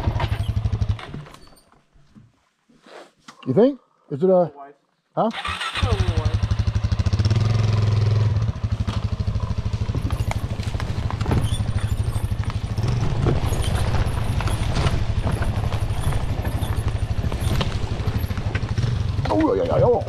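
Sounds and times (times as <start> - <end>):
dirt bike engine at low revs: 0.0 - 1.3, 5.5 - 20.0.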